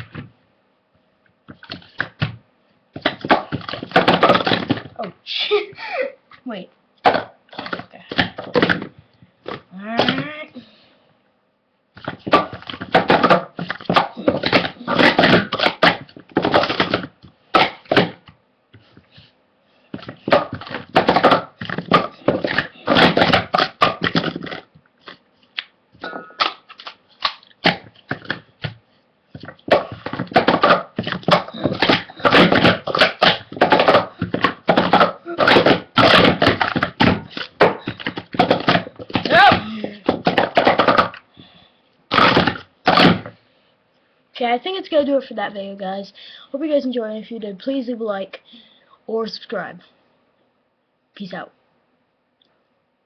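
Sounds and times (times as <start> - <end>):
plastic cups clattering: 12.0 - 18.2, 20.0 - 25.2, 29.4 - 41.3.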